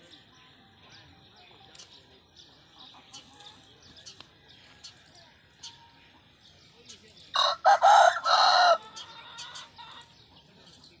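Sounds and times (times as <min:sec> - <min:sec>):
rooster crowing: 0:07.4 - 0:08.9.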